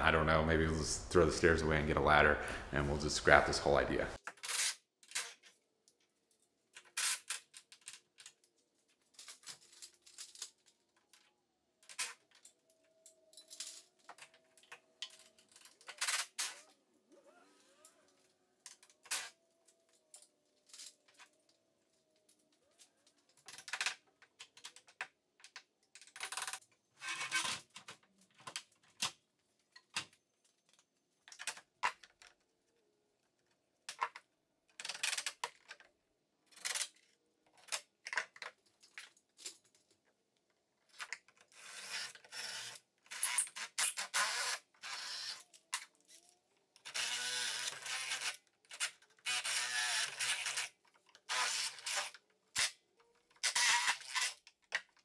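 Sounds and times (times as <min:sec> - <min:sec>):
impact driver drilling into wood: 0:44.1 - 0:45.4, 0:46.9 - 0:48.3, 0:49.3 - 0:50.7.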